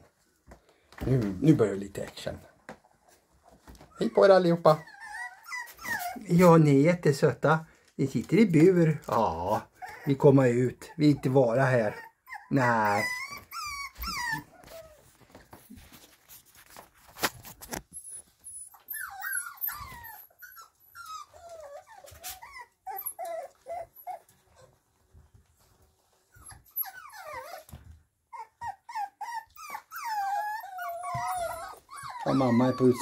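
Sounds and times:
puppies whining: 2.8s - 6.6s, 9.0s - 15.8s, 17.7s - 33.0s.

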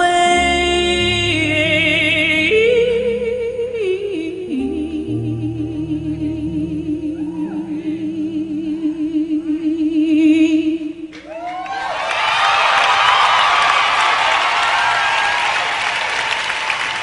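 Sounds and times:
soft low accompanying notes: 0.0s - 11.1s
woman singing long note: 0.0s - 11.1s
audience applause: 11.2s - 17.0s.

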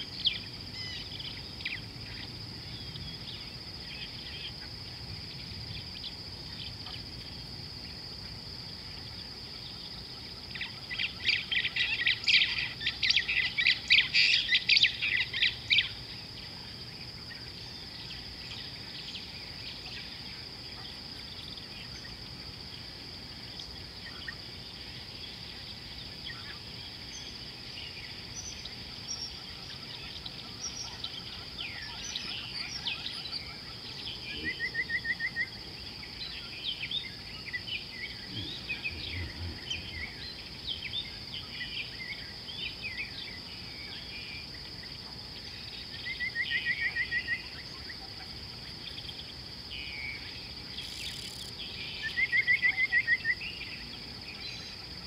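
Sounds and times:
high insect drone: 0.0s - 55.0s
faint bird chirps: 25.2s - 55.0s.

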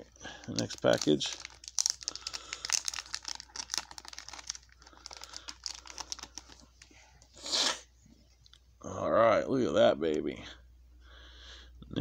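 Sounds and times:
plastic wrapping crinkling: 0.0s - 7.0s.

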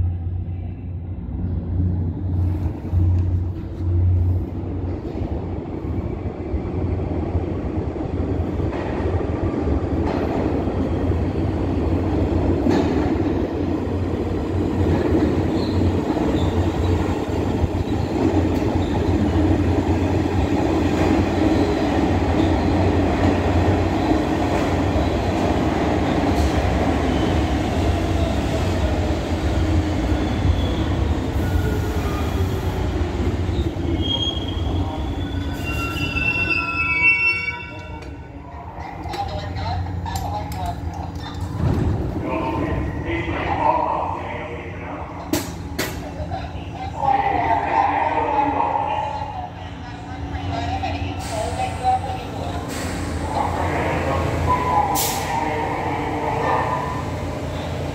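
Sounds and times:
subway train rumble: 0.0s - 57.9s
brake squeals: 33.5s - 38.0s.

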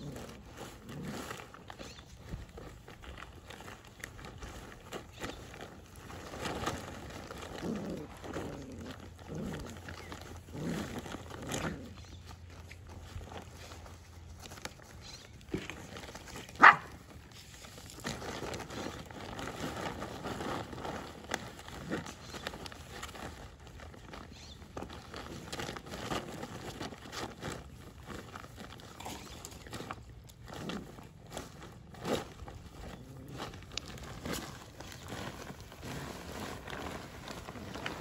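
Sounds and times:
puppy yip: 16.6s - 16.9s
puppies barking: 16.6s - 17.0s.

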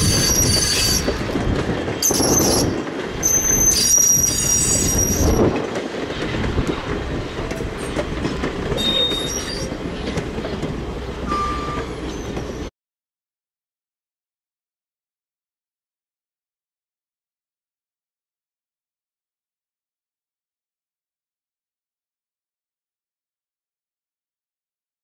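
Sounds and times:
train wheels squealing: 0.0s - 1.3s, 2.0s - 5.4s, 8.8s - 9.8s, 11.3s - 12.7s
train coaches rumbling on track: 0.0s - 12.7s.

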